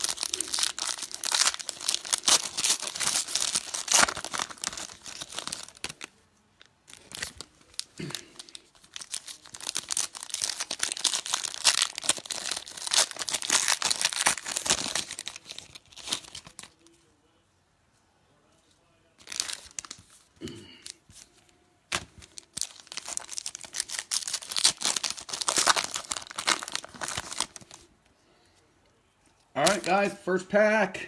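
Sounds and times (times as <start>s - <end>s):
foil wrappers tearing and crinkling: 0.0s - 6.1s, 6.9s - 16.8s, 21.9s - 27.8s, 29.6s - 30.0s.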